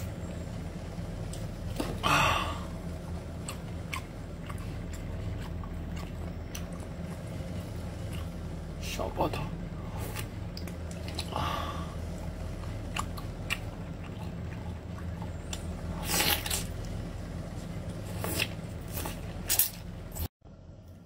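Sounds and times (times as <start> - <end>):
low hum: 0.0 - 21.0
chewing: 3.4 - 8.4, 10.0 - 11.4, 12.5 - 17.0
wet sucking and slurping: 15.8 - 17.0.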